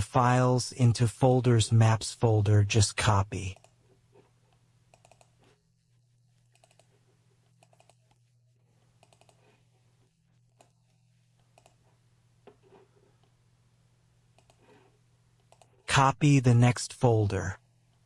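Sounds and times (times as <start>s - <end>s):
mouse and keyboard clicks: 4.9s - 5.6s, 6.5s - 6.9s, 7.6s - 8.2s, 9.0s - 9.5s, 11.4s - 11.8s, 14.4s - 14.7s.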